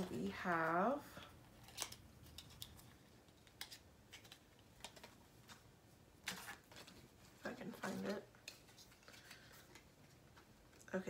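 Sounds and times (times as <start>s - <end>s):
small packaging clicks and taps: 1.2s - 5.6s.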